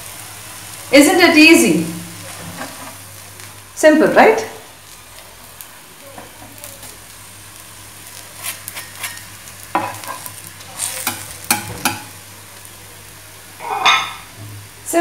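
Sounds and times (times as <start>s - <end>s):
oil sizzling in a pan: 0.0s - 15.0s
metal spatula scraping a pan: 8.4s - 12.0s.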